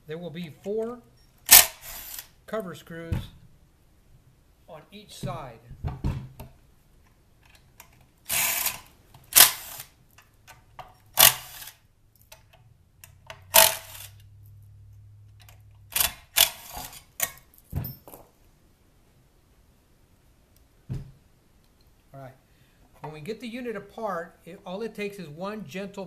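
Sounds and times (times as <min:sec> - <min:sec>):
impact driver clatter: 0:13.5 - 0:14.2.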